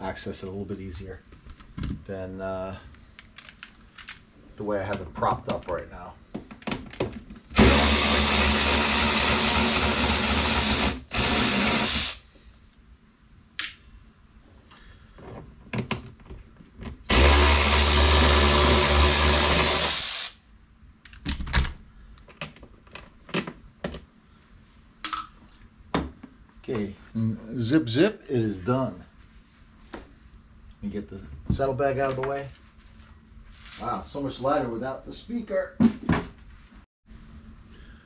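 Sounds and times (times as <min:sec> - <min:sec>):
cordless screwdriver whirring: 0:07.6 - 0:12.2, 0:17.1 - 0:20.4.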